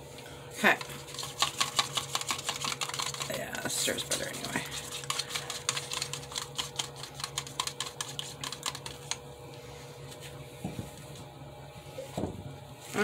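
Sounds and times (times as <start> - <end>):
stir stick scraping plastic cup: 0.6 - 9.2.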